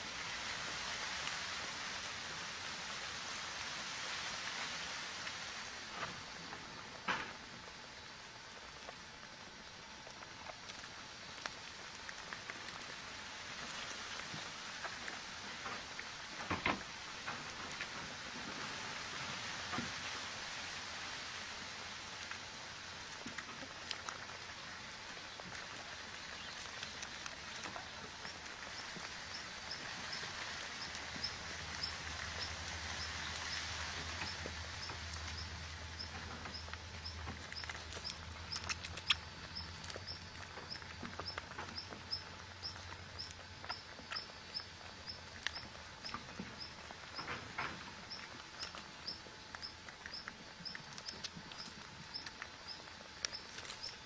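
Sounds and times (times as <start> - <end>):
faint hiss: 0.0 - 37.6
low hum: 0.0 - 54.0.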